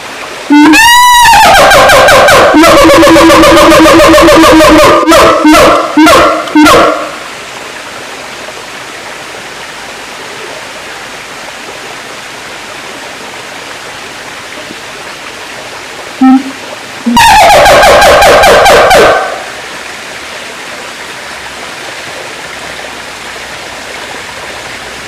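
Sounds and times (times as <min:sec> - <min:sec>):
steady hiss: 0:00.0 - 0:00.8, 0:05.8 - 0:17.2
ape barking calls: 0:00.5 - 0:07.2, 0:16.2 - 0:19.4.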